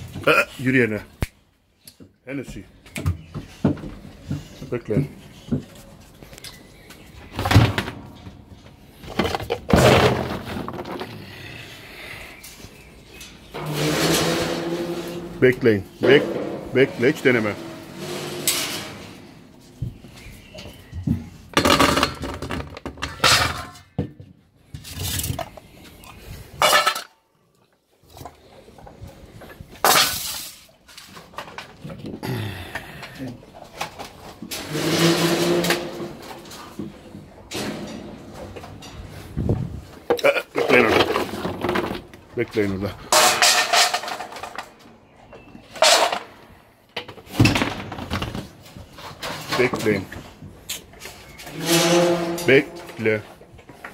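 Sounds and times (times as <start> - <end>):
metal dog bowls clattering: 13.1 - 20.0, 26.6 - 27.1, 40.0 - 42.0, 42.6 - 44.8, 45.8 - 46.4.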